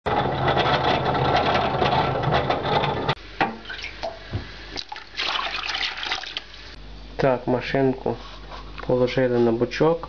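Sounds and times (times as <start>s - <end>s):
washing machine motor hum: 0.0s - 7.9s.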